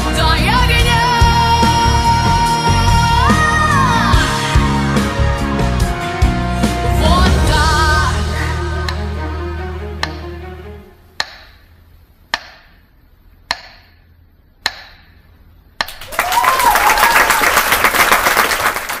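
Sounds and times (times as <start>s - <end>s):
audience applause: 15.9s - 19.0s
cheer or whistle: 16.1s - 17.7s.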